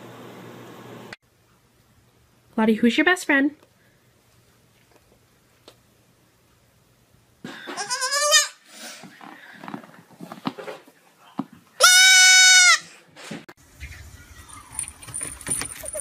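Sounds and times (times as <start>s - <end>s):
baby goat bleating: 7.6s - 8.6s, 11.8s - 12.8s.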